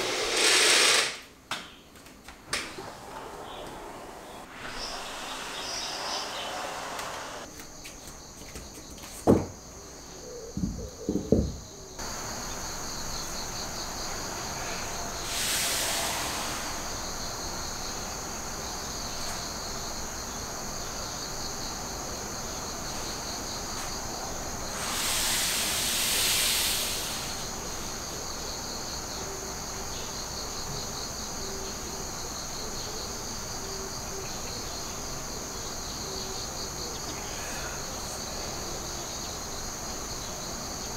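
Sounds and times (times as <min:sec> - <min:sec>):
rushing noise: 0:00.0 - 0:01.2, 0:02.6 - 0:07.5, 0:14.1 - 0:17.7
insects chirring: 0:02.7 - 0:40.9
sharp knocks: 0:10.6 - 0:11.6.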